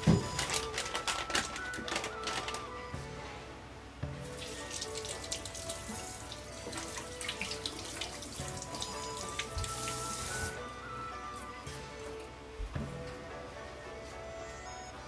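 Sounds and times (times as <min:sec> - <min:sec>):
knocks of things handled: 0:00.0 - 0:02.6
water splashing: 0:04.2 - 0:10.6.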